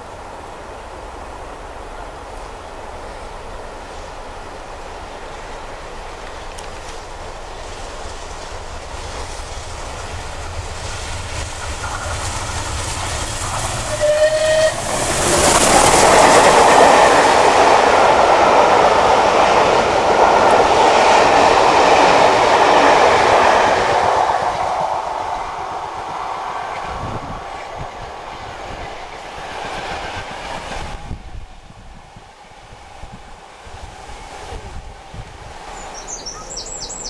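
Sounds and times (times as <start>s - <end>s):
steam train rumble: 0.0s - 37.0s
wheels clattering over rails: 6.2s - 25.0s
train whistle blast: 13.8s - 15.5s.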